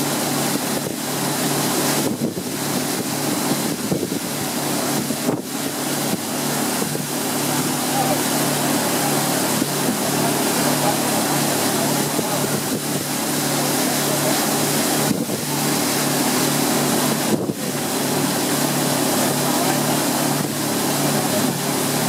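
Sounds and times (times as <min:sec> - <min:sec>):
motorboat engine running: 0:00.0 - 0:22.0
water rushing past hull: 0:00.0 - 0:22.0.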